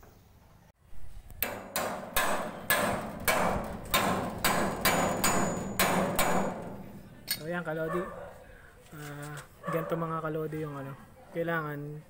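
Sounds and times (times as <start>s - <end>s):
hammer striking metal: 1.4s - 7.7s.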